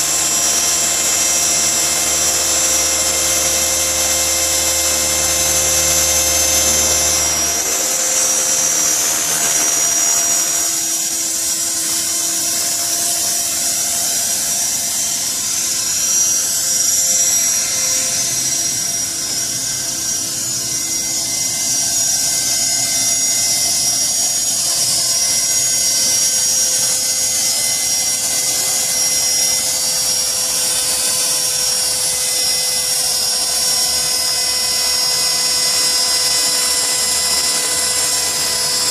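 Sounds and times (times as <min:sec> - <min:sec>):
rc helicopter whine: 0:00.0 - 0:38.9.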